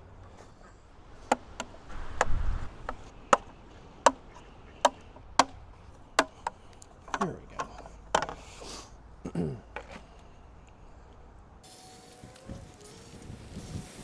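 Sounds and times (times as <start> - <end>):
plastic charger clicks and knocks: 6.2 - 8.4.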